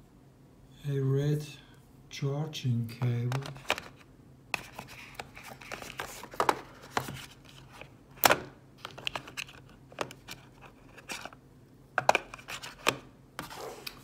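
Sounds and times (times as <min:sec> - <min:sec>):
plastic clicks and scrapes: 0:03.3 - 0:11.4
packaging rustling: 0:04.6 - 0:07.9.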